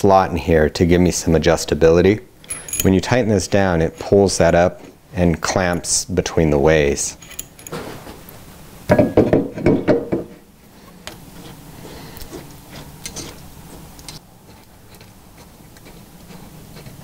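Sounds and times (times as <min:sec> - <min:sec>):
metallic clatter of clamp: 0:02.4 - 0:03.0, 0:07.2 - 0:08.0
bolt ticking and rubbing: 0:07.2 - 0:07.8.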